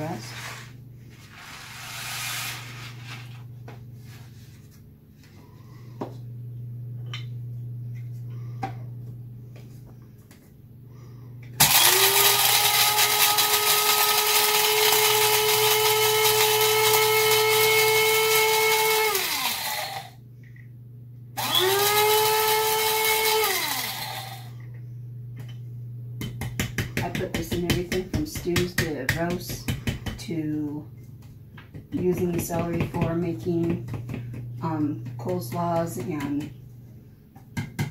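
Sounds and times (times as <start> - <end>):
blade grinder whine: 11.6 - 20.2, 21.4 - 24.5.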